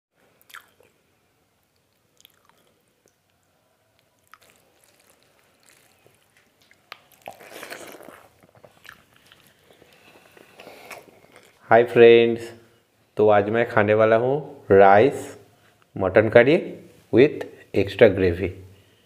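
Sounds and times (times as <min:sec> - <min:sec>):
chewing: 0:00.4 - 0:01.0, 0:01.8 - 0:03.4, 0:04.0 - 0:11.6
fingers squishing rice: 0:04.2 - 0:11.5.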